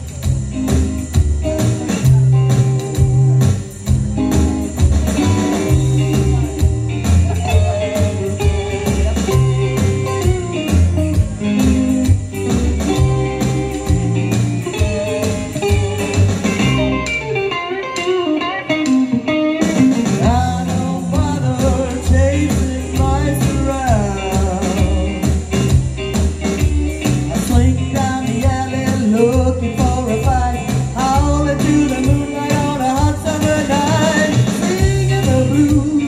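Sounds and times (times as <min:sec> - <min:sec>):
rockabilly backing track: 0:00.0 - 0:36.0
person singing into a microphone: 0:05.6 - 0:11.3, 0:19.9 - 0:25.4, 0:27.3 - 0:36.0.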